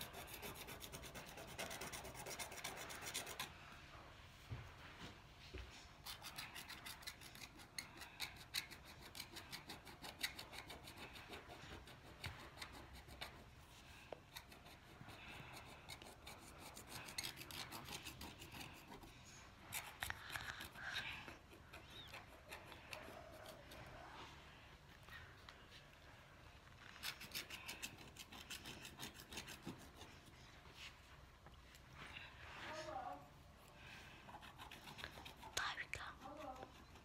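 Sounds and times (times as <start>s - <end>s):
stylus scratching paper: 0.0s - 3.6s, 6.0s - 23.9s, 26.9s - 30.4s, 34.3s - 37.0s.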